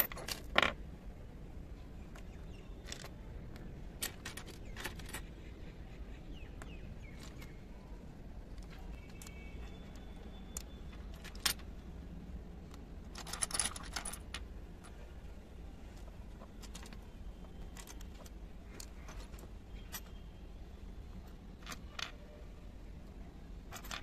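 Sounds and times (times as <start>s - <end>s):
small ceramic and metal pieces clinking: 10.6s - 11.7s, 13.0s - 14.9s, 23.7s - 24.0s
rattling clinks: 13.1s - 14.9s.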